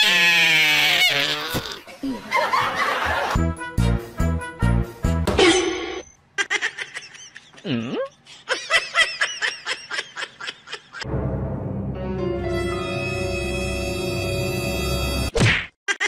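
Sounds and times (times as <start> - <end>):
low music: 3.3 - 5.4, 11.0 - 15.3
person laughing: 6.4 - 11.0.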